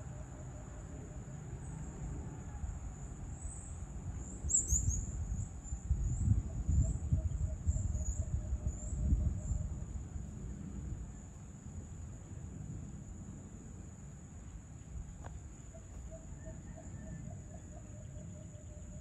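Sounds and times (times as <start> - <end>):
bird chirps: 4.4 - 5.4.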